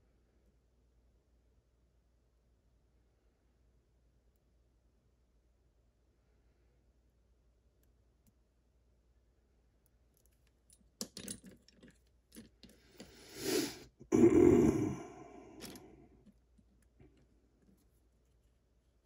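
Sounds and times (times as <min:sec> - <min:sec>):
metal tools clicking and clattering: 0:10.7 - 0:13.1.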